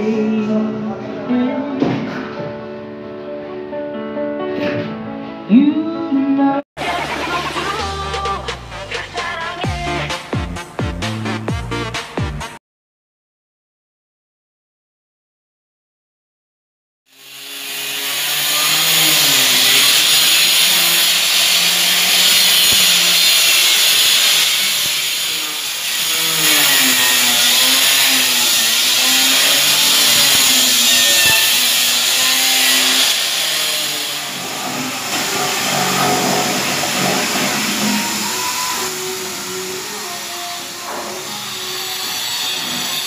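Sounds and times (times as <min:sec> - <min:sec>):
angle grinder cutting stone: 0:17.1 - 0:43.0.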